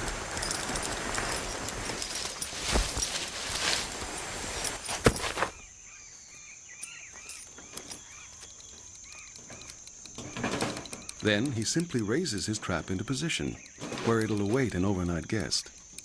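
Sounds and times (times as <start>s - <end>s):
body scraping against bark: 0.0s - 6.3s
high insect drone: 0.0s - 16.0s
short chirping calls: 5.4s - 16.0s.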